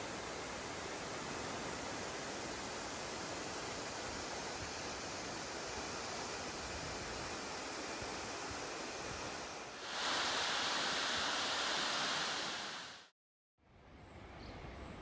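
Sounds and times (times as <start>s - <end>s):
falling water rushing: 9.8s - 13.1s.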